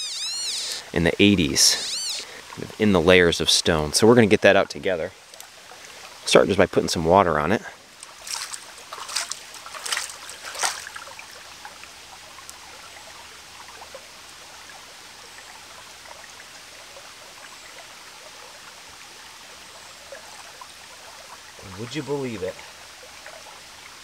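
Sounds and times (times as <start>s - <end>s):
stream trickling: 0.0s - 24.0s
water splashing onto stone: 8.0s - 11.2s.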